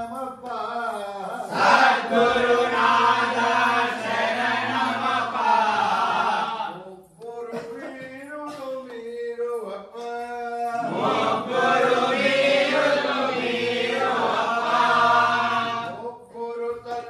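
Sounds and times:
men chanting in unison: 1.0s - 6.8s, 10.6s - 17.0s
man chanting: 6.1s - 11.0s, 14.9s - 17.0s.

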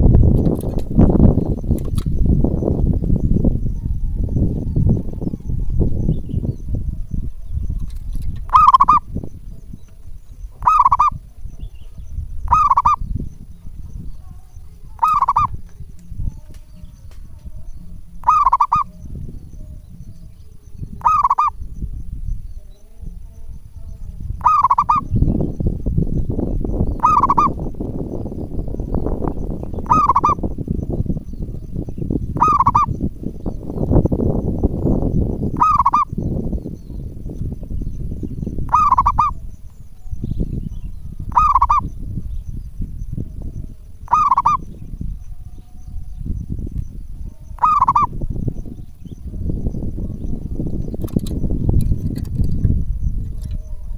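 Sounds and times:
steady low rumbling noise: 0.0s - 53.9s
dove cooing: 6.8s - 9.2s, 10.4s - 11.4s, 12.4s - 13.1s, 14.2s - 15.6s, 16.7s - 20.0s, 20.9s - 21.6s, 24.4s - 25.2s, 26.8s - 27.7s, 29.8s - 30.5s, 32.3s - 33.0s, 35.5s - 36.2s, 38.6s - 39.6s, 41.2s - 41.9s, 44.0s - 44.6s, 47.3s - 48.3s.

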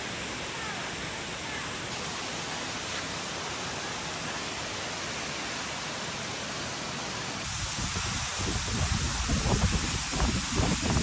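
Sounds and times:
waterfall rushing: 0.0s - 11.0s
wind buffeting microphone: 7.5s - 11.0s.

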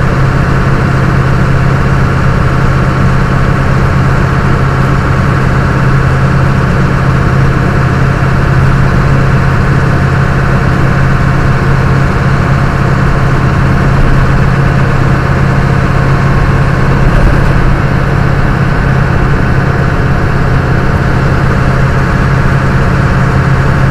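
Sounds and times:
truck engine and road noise: 0.0s - 23.9s.

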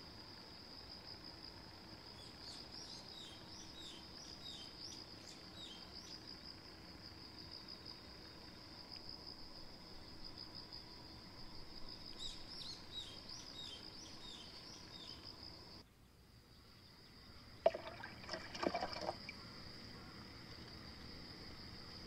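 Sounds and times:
insects trilling: 0.0s - 22.0s
bird chirping: 12.2s - 15.3s
water splashing: 17.6s - 19.3s.

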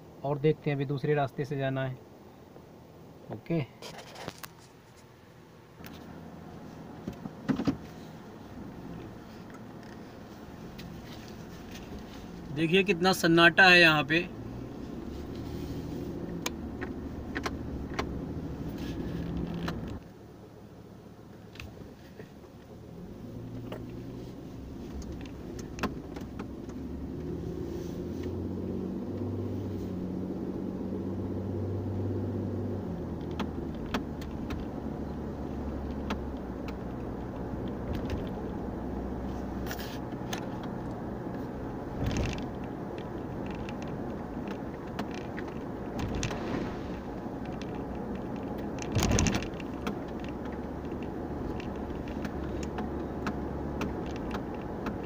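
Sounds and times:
car engine and road hum: 0.0s - 55.0s
small clicks and rattles: 42.0s - 55.0s.

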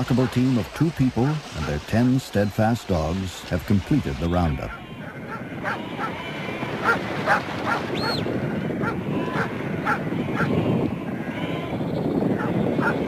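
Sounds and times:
flock of sheep moving: 0.0s - 11.8s
dogs barking: 4.7s - 6.2s, 6.8s - 8.2s, 8.8s - 10.6s, 12.4s - 13.0s.

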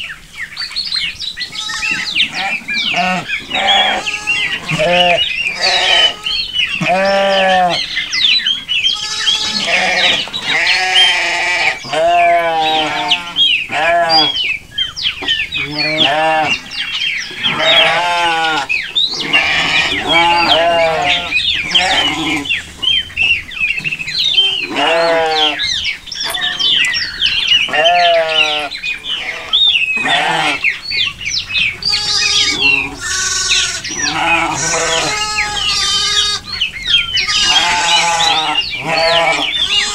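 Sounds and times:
sheep bleating: 1.5s - 8.0s, 8.8s - 14.4s, 15.6s - 16.7s, 17.4s - 22.6s, 24.4s - 26.9s, 27.6s - 30.7s, 31.8s - 36.6s, 37.2s - 39.9s.

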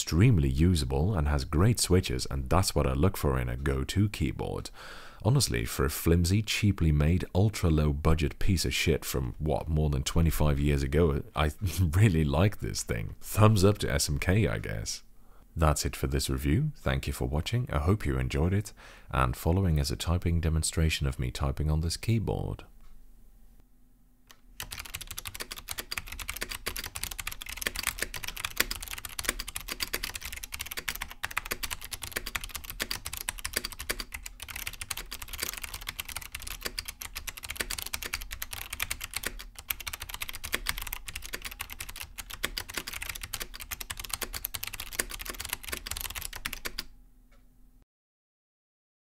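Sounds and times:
fast keyboard typing: 24.6s - 46.9s.

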